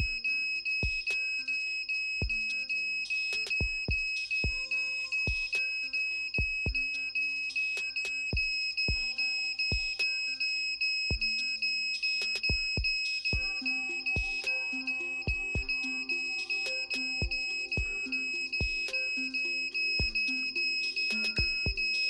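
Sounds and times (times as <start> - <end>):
music with kick-drum beat: 0.0 - 0.2, 0.8 - 1.2, 2.2 - 2.5, 3.4 - 4.7, 5.3 - 5.6, 6.4 - 6.9, 8.3 - 10.0, 11.1 - 11.4, 12.2 - 13.6, 14.2 - 14.5, 15.3 - 15.8, 17.2 - 19.0, 20.0 - 20.3, 21.2 - 22.0
piezo alarm buzzer tone: 0.0 - 22.0.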